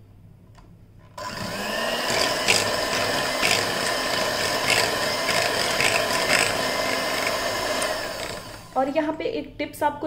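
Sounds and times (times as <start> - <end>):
electric hand mixer running: 1.2 - 9.0.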